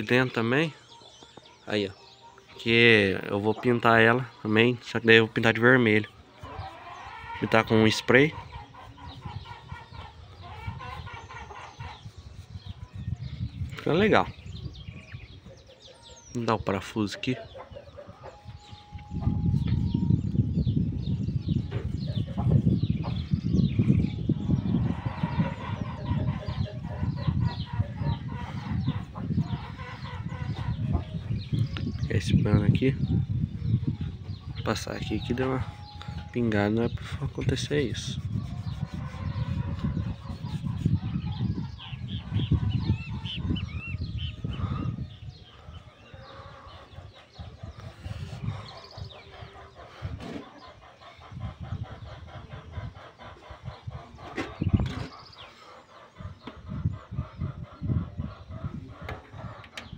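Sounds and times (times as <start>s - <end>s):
chickens clucking: 0.0s - 59.9s
paintbrush scrubbing on wood: 35.0s - 41.5s, 47.8s - 49.0s
rag rubbing on metal rail: 37.0s - 41.2s.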